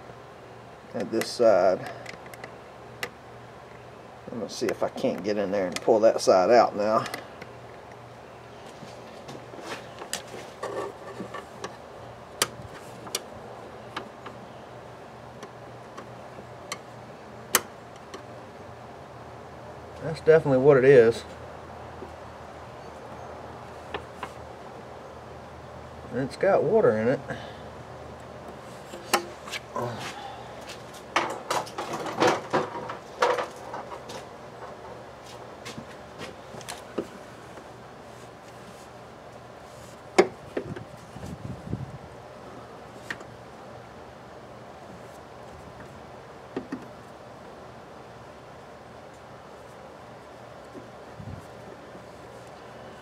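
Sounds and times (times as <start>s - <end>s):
tools and parts clattering: 31.1s - 34.8s.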